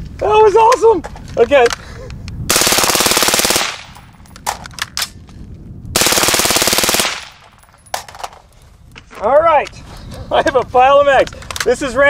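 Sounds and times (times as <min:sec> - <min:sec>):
suppressed rifle firing bursts: 0:02.5 - 0:04.1, 0:06.0 - 0:07.6.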